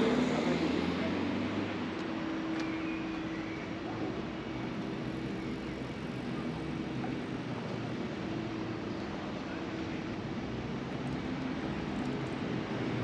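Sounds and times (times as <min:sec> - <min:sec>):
passing vehicles rushing: 0:00.0 - 0:03.3
low engine hum: 0:00.0 - 0:13.0.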